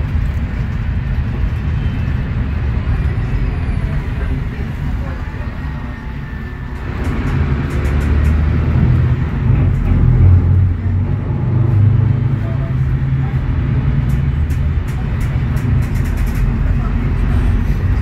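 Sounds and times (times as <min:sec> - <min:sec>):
bus diesel engine: 0:00.0 - 0:18.0.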